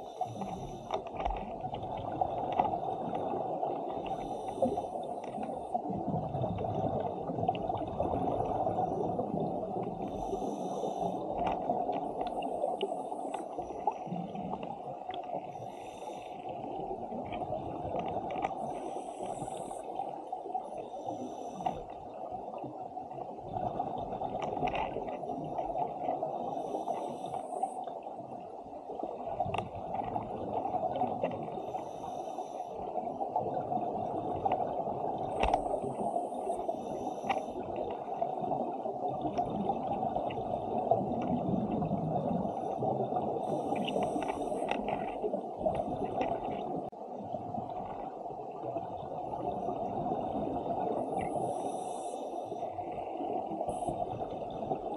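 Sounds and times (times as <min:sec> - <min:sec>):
muffled underwater rushing: 0:00.0 - 0:54.9
bubbles gurgling: 0:05.7 - 0:10.1, 0:23.4 - 0:26.5, 0:37.6 - 0:51.6.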